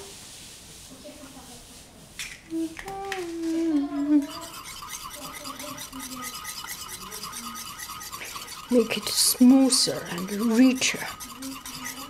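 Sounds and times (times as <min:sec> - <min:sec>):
person humming: 0:03.0 - 0:04.3
whisk scraping a bowl: 0:03.3 - 0:12.0.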